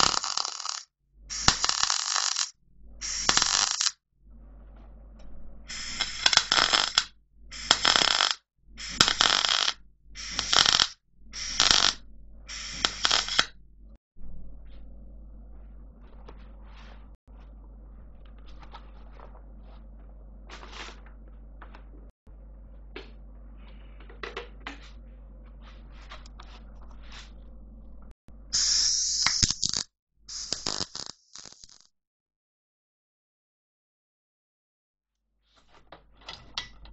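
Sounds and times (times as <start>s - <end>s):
welder arcing: 0.0s - 4.0s, 5.7s - 13.6s, 28.6s - 31.9s
low hum: 4.2s - 5.8s, 11.2s - 28.6s.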